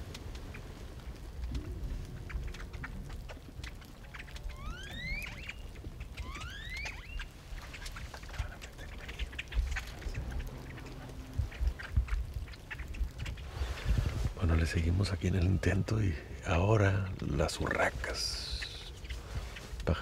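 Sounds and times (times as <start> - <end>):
blackbirds clicking and chattering: 0.0 - 20.0
rising bird whistles: 4.5 - 5.6, 6.2 - 7.3.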